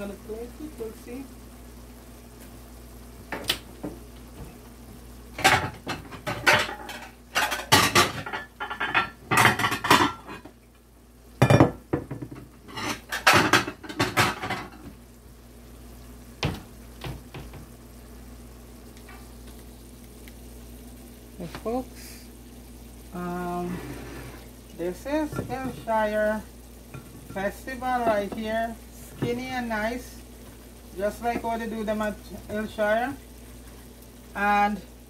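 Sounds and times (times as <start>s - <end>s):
low steady hum: 0.0s - 35.0s
dishes and cutlery clattering: 5.4s - 10.5s, 11.4s - 14.8s.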